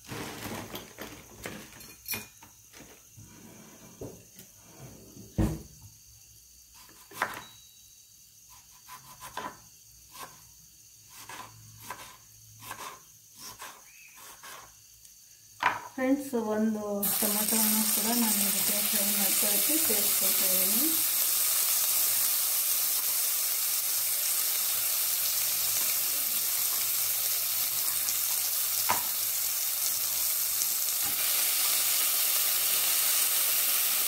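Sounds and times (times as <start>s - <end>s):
spices crackling in hot oil: 17.0s - 34.0s.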